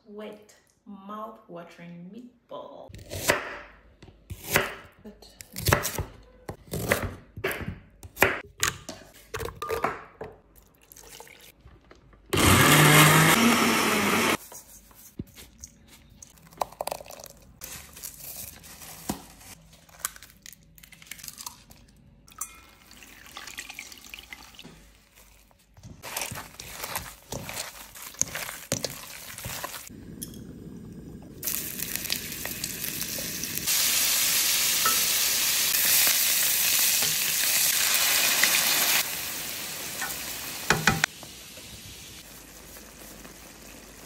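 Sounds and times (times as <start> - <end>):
kitchen blender running: 12.3 - 14.4
handling in a steel bowl: 24.6 - 29.9.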